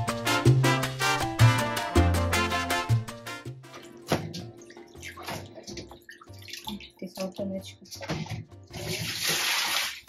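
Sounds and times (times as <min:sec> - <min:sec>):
background music with bass: 0:00.0 - 0:05.3
water running from tap: 0:03.8 - 0:10.0.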